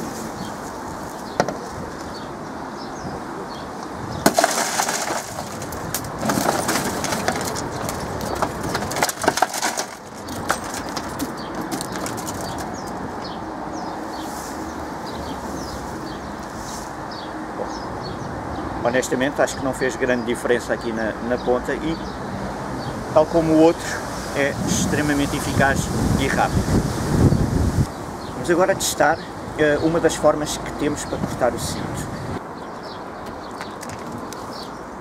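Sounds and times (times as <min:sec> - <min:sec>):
broken glass crunching and tinkling: 0:04.2 - 0:12.3
car window shattering: 0:04.2 - 0:12.7
birds chirping faintly: 0:27.2 - 0:35.0.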